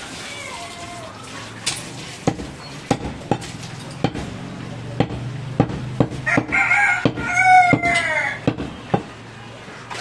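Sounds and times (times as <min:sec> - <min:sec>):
knife chopping meat on wood: 0:02.2 - 0:09.2.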